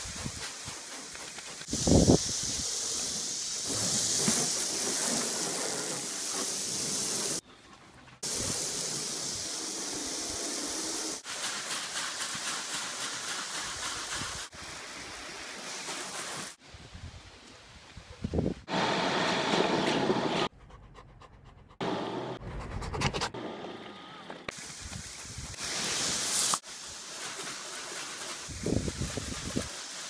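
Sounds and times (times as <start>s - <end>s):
hose water spraying on car: 0.0s - 7.4s, 8.2s - 16.6s, 24.5s - 30.0s.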